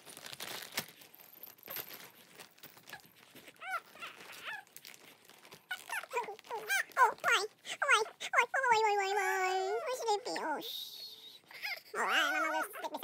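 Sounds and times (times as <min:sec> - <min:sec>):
soft toys rustling: 0:00.0 - 0:13.0
baby cooing and squealing: 0:03.6 - 0:04.7, 0:05.7 - 0:07.3, 0:09.2 - 0:13.0.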